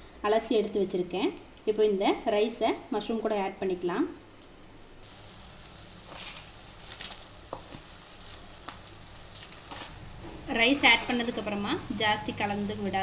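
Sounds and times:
light crackles: 4.4 - 10.5
rice being poured: 5.0 - 9.9
food sizzling in pot: 5.0 - 13.0.

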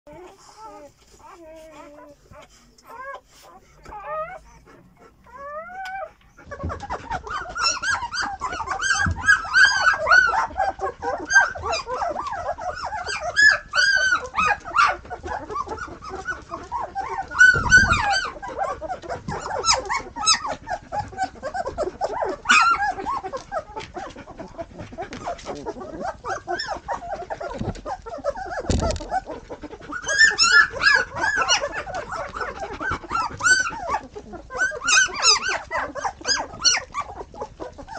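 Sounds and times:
puppies whining and yipping: 0.1 - 37.9
dull thumps: 17.4 - 18.4.

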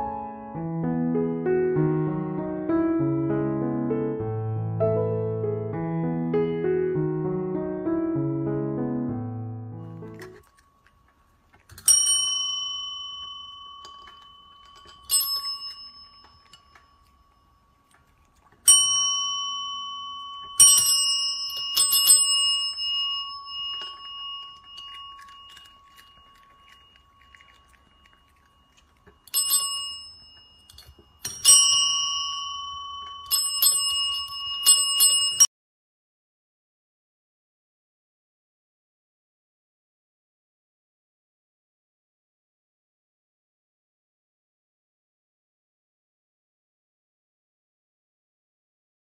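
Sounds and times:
service bell dings: 11.9 - 16.8, 18.7 - 24.9, 29.3 - 35.5.

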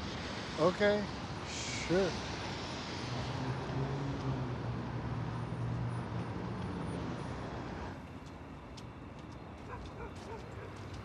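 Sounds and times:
passing traffic hiss and hum: 0.0 - 11.0.

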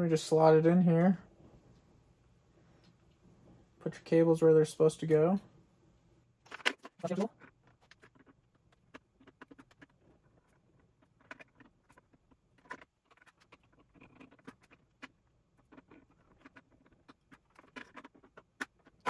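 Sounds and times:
wires rustling: 6.4 - 19.0.

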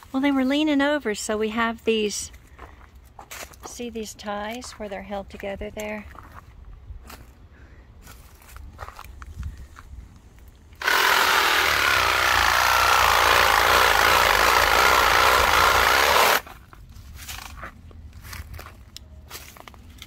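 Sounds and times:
power saw cutting stalk: 10.8 - 16.5.

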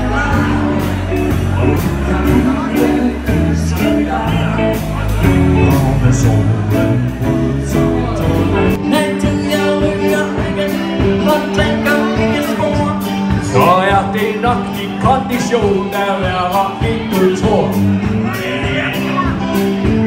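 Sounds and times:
band playing: 0.0 - 20.0
person singing: 0.0 - 20.0.

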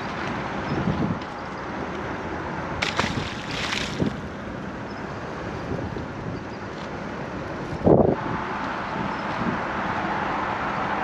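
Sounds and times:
wind buffeting microphone: 0.0 - 1.4, 2.6 - 4.5, 7.5 - 9.8
steady outdoor rumble: 0.0 - 11.0.

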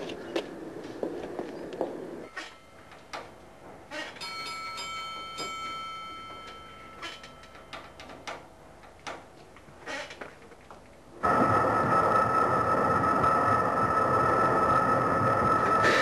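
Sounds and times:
bell ringing: 4.2 - 7.8.

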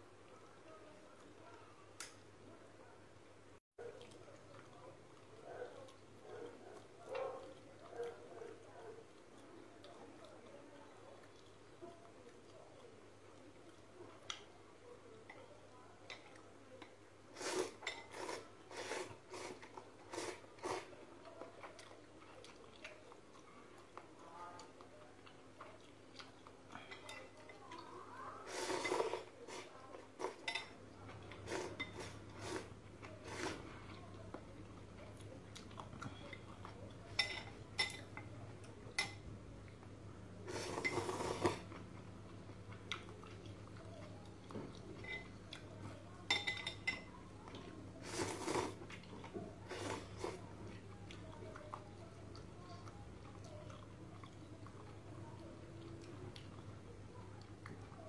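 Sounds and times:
crayfish crunching dry noodles: 39.8 - 58.0.

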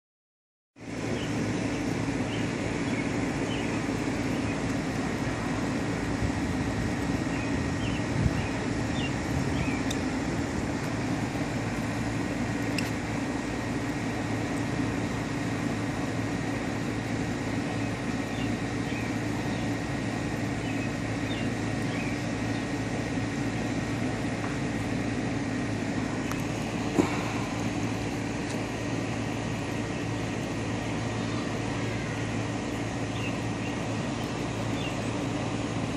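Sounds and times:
mechanical hum with high whine: 0.8 - 35.9.

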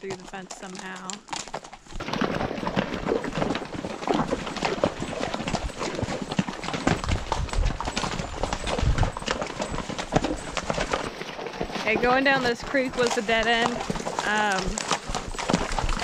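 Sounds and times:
hooves clip-clopping on stones: 0.0 - 16.0.

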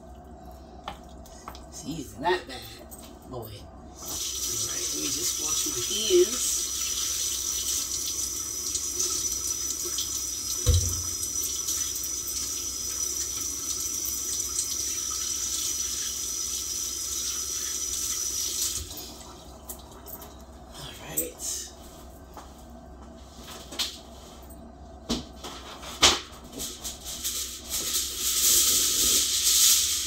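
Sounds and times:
tap running into sink: 9.8 - 11.8
thump: 10.6 - 11.1.

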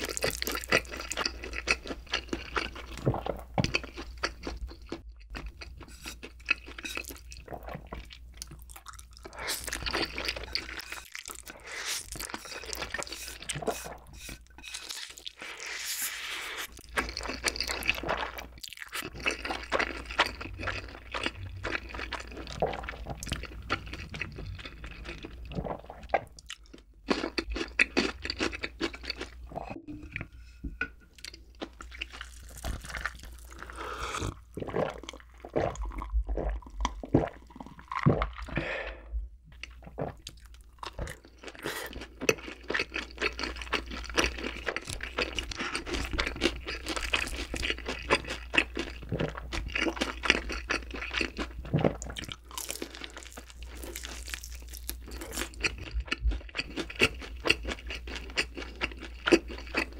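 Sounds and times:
wet slurping and chewing: 0.0 - 59.9
gulping a drink: 31.9 - 53.4.

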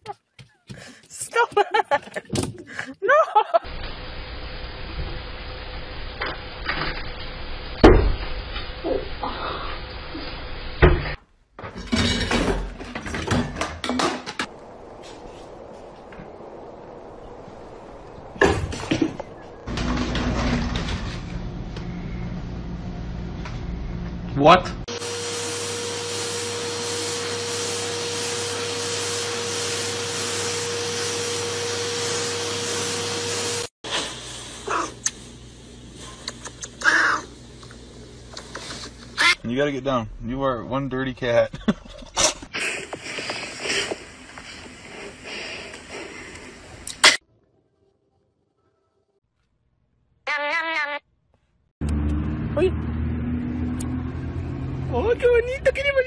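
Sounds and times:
vacuum cleaner running: 24.9 - 34.7.

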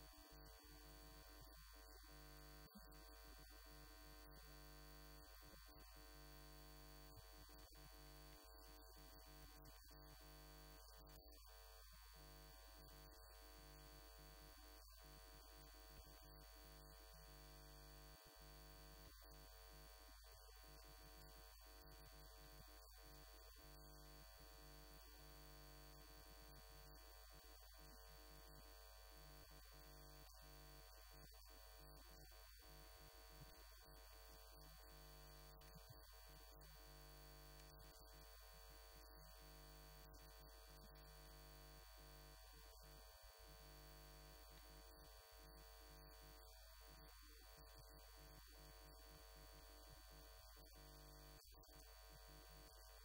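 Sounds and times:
faint electrical hum: 0.0 - 11.4.

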